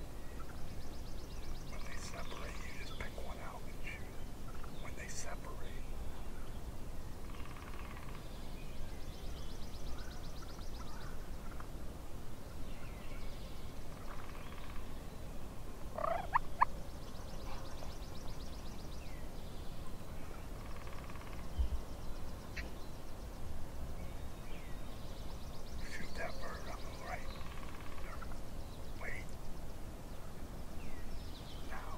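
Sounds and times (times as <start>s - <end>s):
birds calling: 0.0s - 11.8s, 12.4s - 31.9s
turkeys gobbling: 16.0s - 16.7s.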